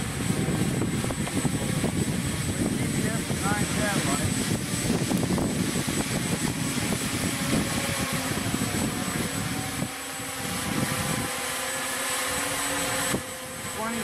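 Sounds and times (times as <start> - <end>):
heavy low rumble: 0.0 - 9.9
quadcopter buzzing: 0.0 - 14.0.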